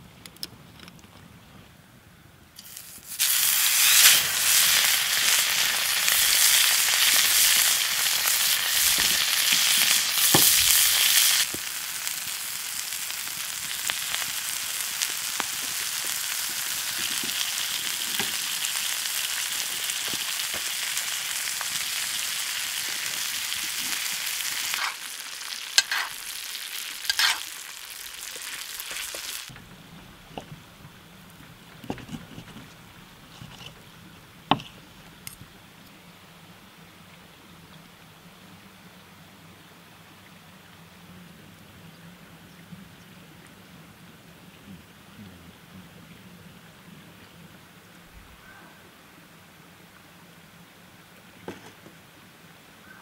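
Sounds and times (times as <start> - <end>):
steak sizzling in skillet: 2.6 - 29.5.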